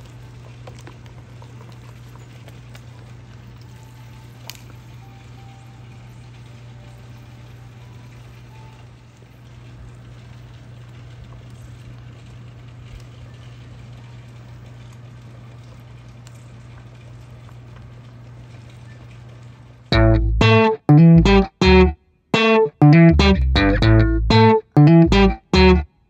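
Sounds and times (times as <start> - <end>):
stew boiling and bubbling: 0.0 - 19.9
constant low hum: 19.9 - 25.9.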